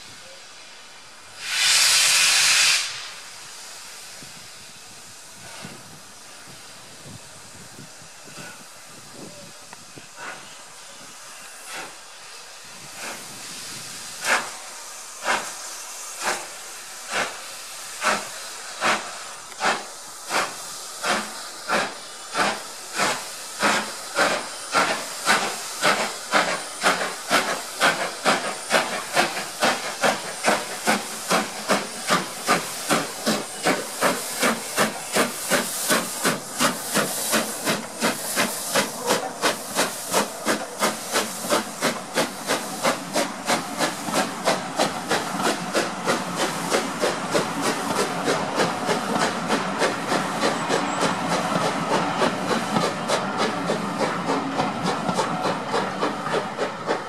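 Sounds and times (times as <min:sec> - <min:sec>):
steam hissing: 0:00.0 - 0:57.0
steam locomotive exhaust chuffs: 0:00.0 - 0:57.0.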